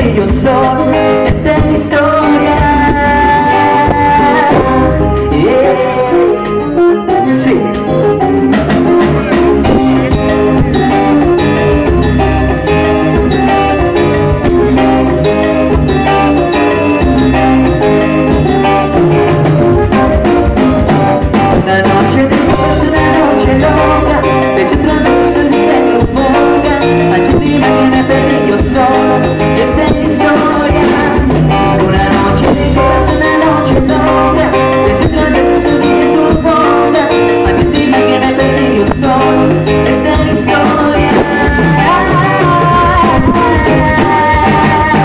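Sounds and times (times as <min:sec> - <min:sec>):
live latin band through pa: 0:00.0 - 0:45.0.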